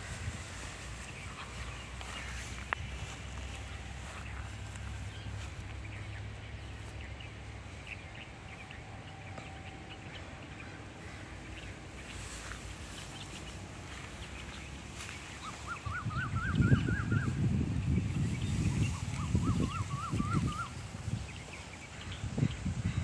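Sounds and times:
outdoor background noise: 0:00.0 - 0:23.0
small birds chirping: 0:00.0 - 0:23.0
wavering repeated bird call: 0:15.4 - 0:17.4, 0:18.8 - 0:20.9.

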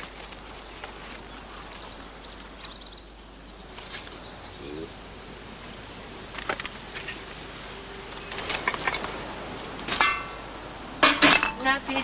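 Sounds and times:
glass bottles clinking together: 0:11.0 - 0:11.8.

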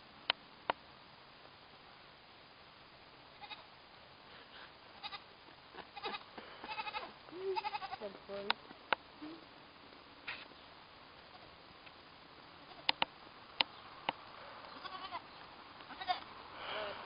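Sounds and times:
goat kid bleating: 0:03.4 - 0:03.7, 0:05.0 - 0:05.3, 0:05.9 - 0:08.2, 0:12.6 - 0:12.9, 0:14.7 - 0:16.3
sharp clicks: 0:12.8 - 0:14.2.

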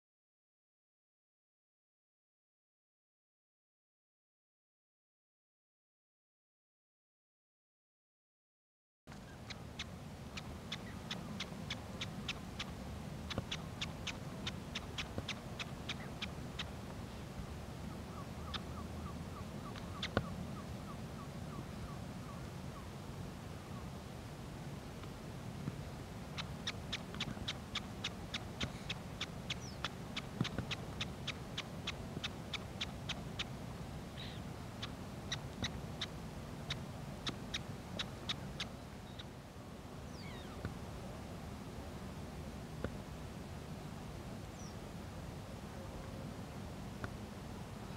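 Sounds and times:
sharp high bird calls: 0:09.2 - 0:16.8, 0:17.9 - 0:22.9, 0:26.4 - 0:33.6, 0:34.2 - 0:36.1, 0:40.1 - 0:40.6
rounded bird call: 0:17.9 - 0:22.9, 0:40.1 - 0:40.6.

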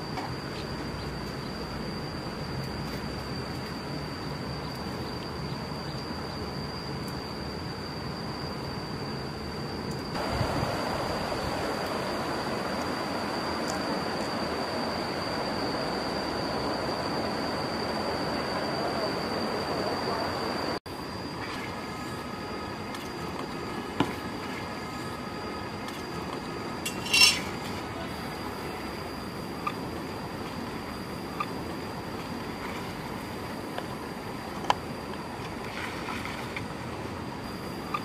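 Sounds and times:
thin high steady tone: 0:00.0 - 0:35.5
outdoor noise: 0:00.0 - 0:38.0
bowl clinking on rock: 0:26.8 - 0:27.6.

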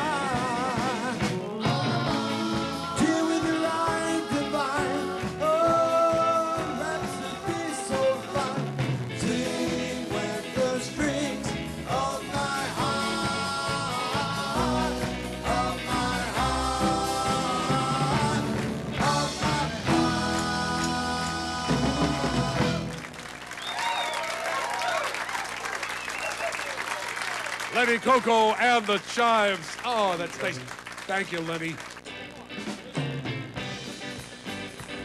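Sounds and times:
vocal group singing close harmony: 0:00.0 - 0:23.1
live backing band: 0:00.0 - 0:35.0.

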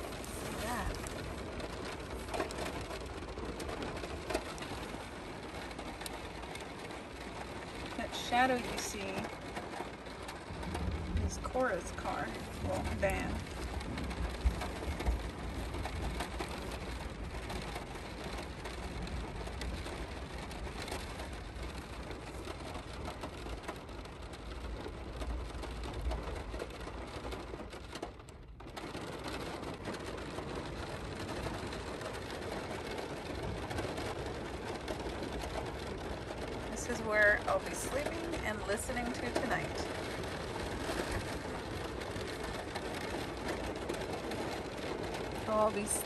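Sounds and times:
rain on car roof: 0:00.0 - 0:46.0.

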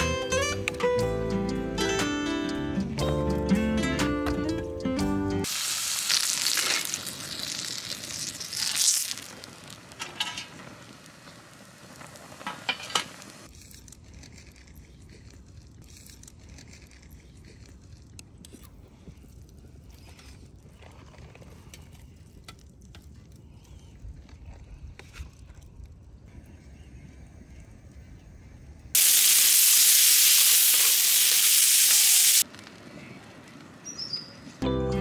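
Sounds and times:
food sizzling in a pan: 0:05.4 - 0:13.5, 0:29.0 - 0:32.5
utensils clicking on pan: 0:09.9 - 0:10.7.

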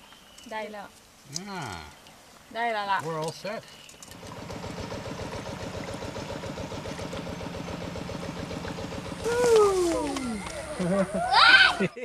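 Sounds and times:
small engine running: 0:04.0 - 0:11.9.

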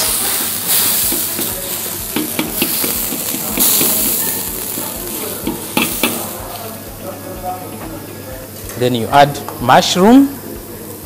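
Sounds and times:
water boiling and hissing: 0:00.0 - 0:07.2.

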